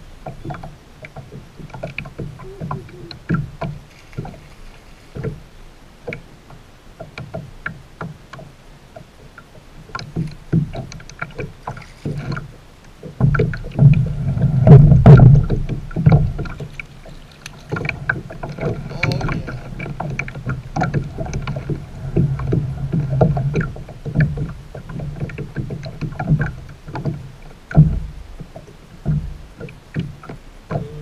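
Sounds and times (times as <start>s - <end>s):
water lapping against paddleboard: 0.2s - 31.0s
low rumbling with knocks: 9.9s - 31.0s.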